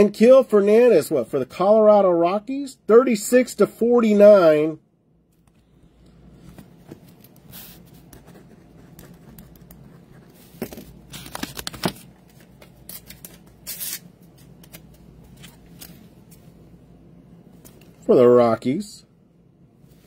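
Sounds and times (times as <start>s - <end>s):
pen scratching on paper: 7.5s - 10.4s
paper ripping: 12.9s - 14.0s.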